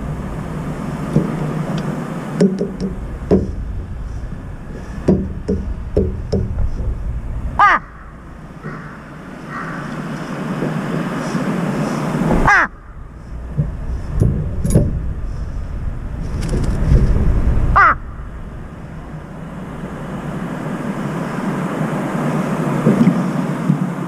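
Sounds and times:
traffic hum: 0.0s - 24.0s
crow cawing: 7.6s - 10.5s, 11.2s - 13.2s, 17.7s - 18.2s.

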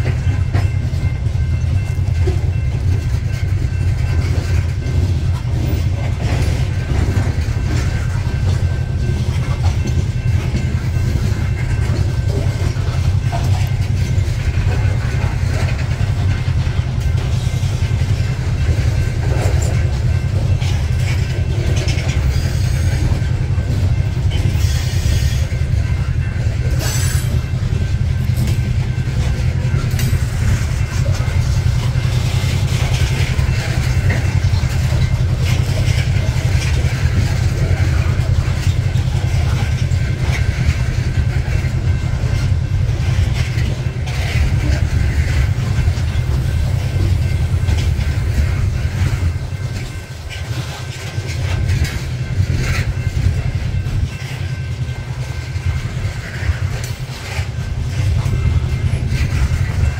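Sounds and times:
steel wheels rumbling on rail: 0.0s - 59.9s.

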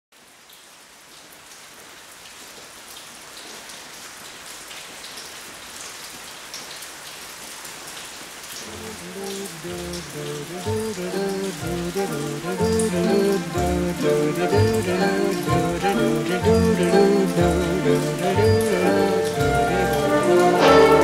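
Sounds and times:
heavy rain falling: 0.2s - 21.0s
music: 9.7s - 21.0s.

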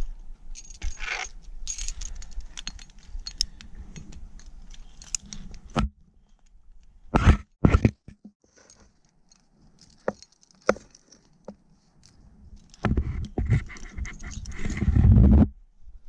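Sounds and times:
climbing gear clinking: 0.0s - 6.6s, 8.5s - 12.9s, 13.6s - 14.9s.

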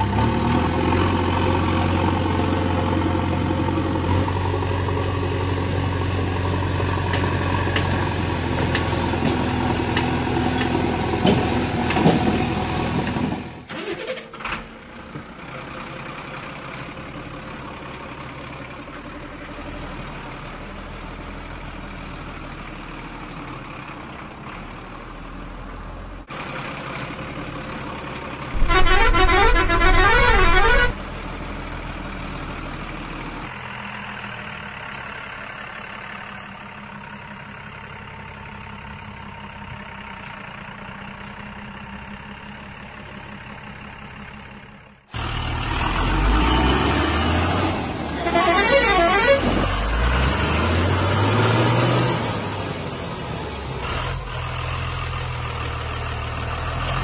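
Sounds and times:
truck engine running: 0.0s - 14.0s, 14.6s - 57.0s
loud truck horn: 28.6s - 31.1s, 48.1s - 50.1s.

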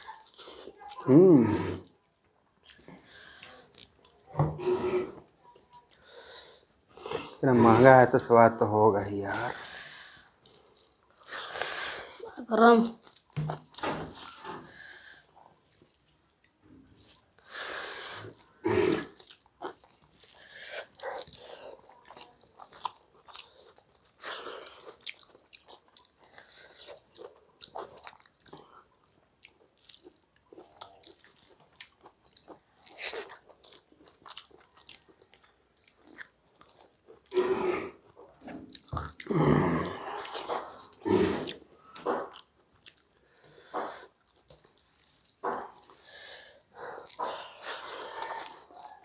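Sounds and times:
chewing and biting: 0.0s - 6.3s, 13.0s - 14.6s, 18.2s - 46.1s, 46.7s - 49.0s.

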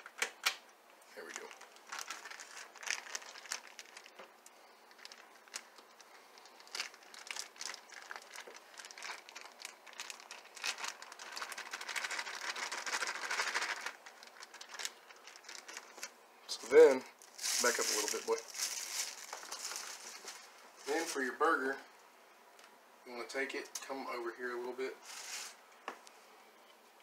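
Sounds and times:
plastic packaging crinkling: 1.2s - 21.4s, 25.0s - 25.6s.

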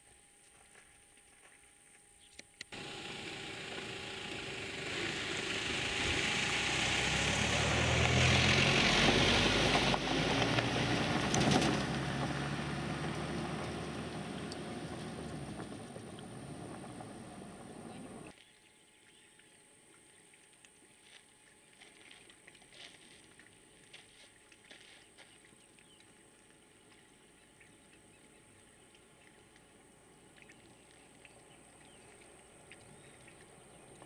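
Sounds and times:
passing motor engine: 2.7s - 18.3s.

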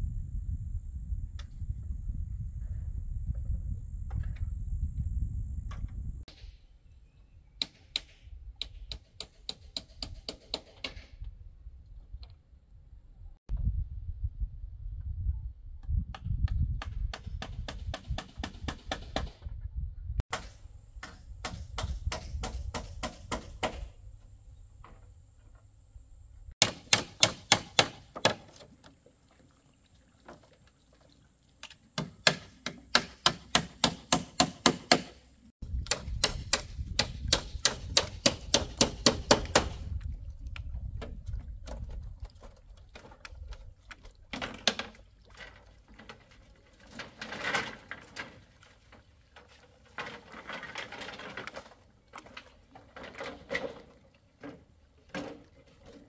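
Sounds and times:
tool striking bamboo: 20.3s - 23.9s, 26.6s - 28.6s, 32.0s - 35.2s, 35.8s - 39.8s.

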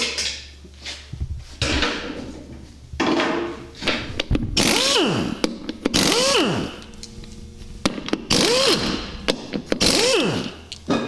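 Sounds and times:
pneumatic impact wrench: 4.6s - 6.9s, 7.9s - 10.7s.

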